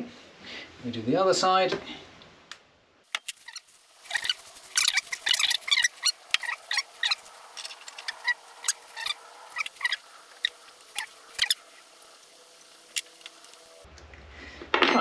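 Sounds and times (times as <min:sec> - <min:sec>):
small metal parts clicking: 0:03.1 - 0:11.6, 0:12.6 - 0:13.7.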